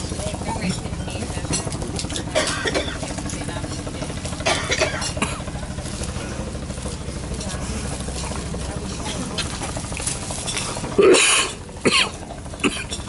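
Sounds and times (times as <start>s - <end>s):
steady low rumble: 0.0s - 13.0s
rustling of hands and food: 5.1s - 11.1s.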